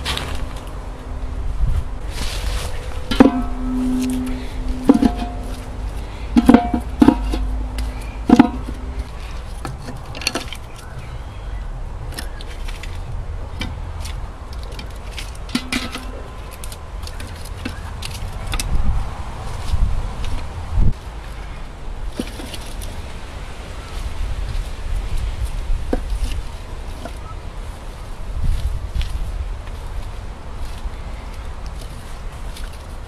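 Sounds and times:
low rumble: 0:00.0 - 0:10.2
metal cookware clanking: 0:03.1 - 0:09.1, 0:15.5 - 0:16.6.

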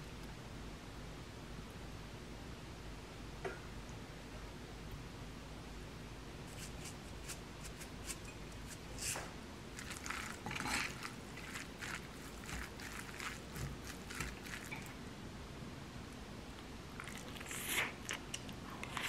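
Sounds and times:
soft squishes: 0:06.5 - 0:15.0
wooden spoon scraping ceramic bowl: 0:06.6 - 0:14.9.

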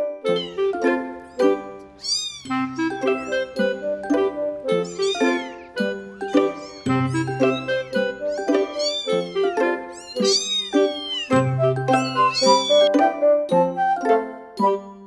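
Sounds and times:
background music: 0:00.0 - 0:15.0
kittens mewing: 0:00.3 - 0:00.8, 0:01.4 - 0:03.5, 0:04.7 - 0:12.9.

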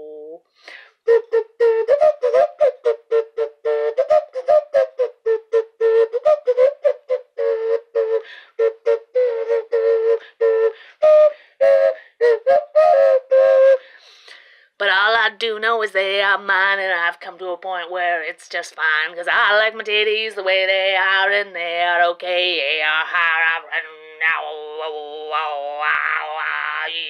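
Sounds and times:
clay vessel flute toots: 0:00.0 - 0:14.6, 0:24.4 - 0:27.0.

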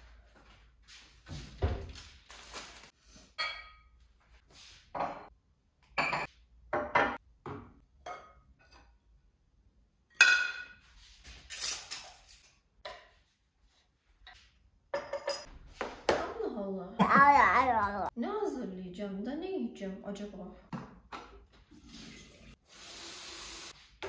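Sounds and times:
dishes and cutlery clinking: 0:03.3 - 0:04.0, 0:10.2 - 0:13.1, 0:14.9 - 0:15.5.

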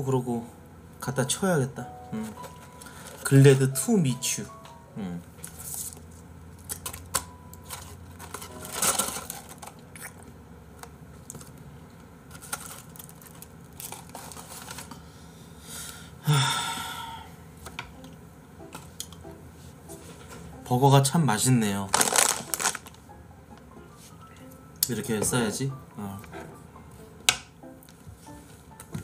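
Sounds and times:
paper box rustling: 0:07.6 - 0:09.8, 0:12.3 - 0:14.9, 0:21.9 - 0:23.0.

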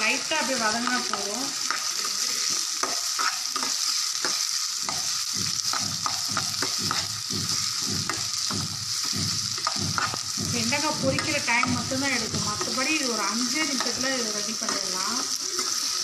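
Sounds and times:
onions sizzling in hot oil: 0:00.0 - 0:16.0
ladle scraping pan: 0:09.6 - 0:10.2.

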